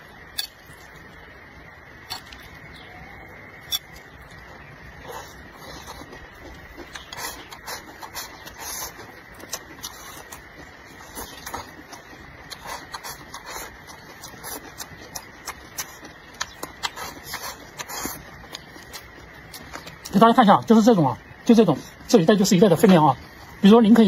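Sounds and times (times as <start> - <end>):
chewing: 3.6 - 20.2.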